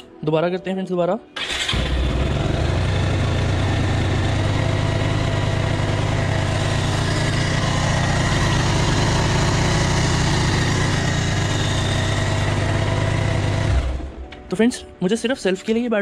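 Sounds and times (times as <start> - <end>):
motorcycle engine idling: 1.5 - 14.2.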